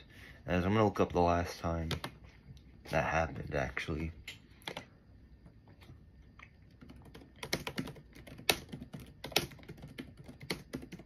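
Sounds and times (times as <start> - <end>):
keyboard typing clicks: 6.4 - 11.0.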